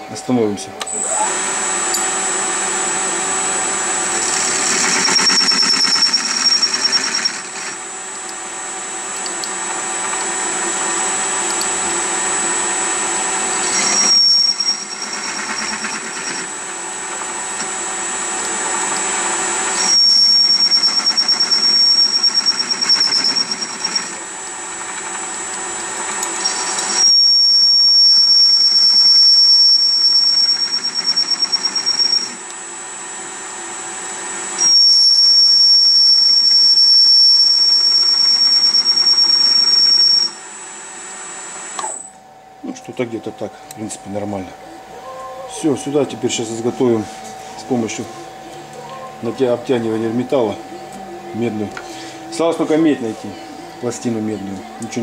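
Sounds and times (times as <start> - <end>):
metal lathe drive whining: 0.0 - 55.0
high squeal of cutting tool: 4.2 - 7.8, 13.4 - 16.6, 19.5 - 24.2, 26.3 - 32.4, 34.6 - 40.4.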